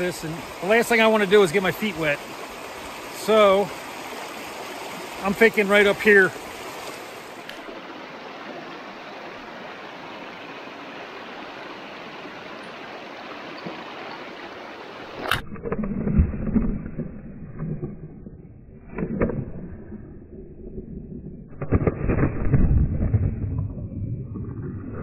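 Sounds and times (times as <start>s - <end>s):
creek water rushing over rocks: 0.0s - 15.4s.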